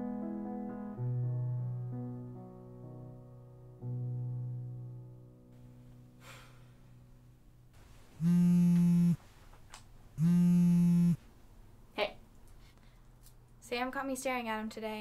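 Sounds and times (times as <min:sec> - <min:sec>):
piano note: 0:00.0 - 0:06.2
buzzy electronic telephone ring: 0:08.2 - 0:09.2, 0:10.2 - 0:11.2.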